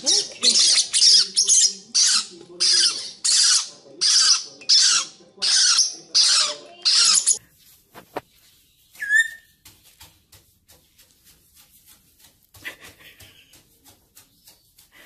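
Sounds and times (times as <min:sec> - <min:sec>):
bird feet tapping on wood: 0:08.9 - 0:15.0
bird whistle: 0:09.0 - 0:09.5.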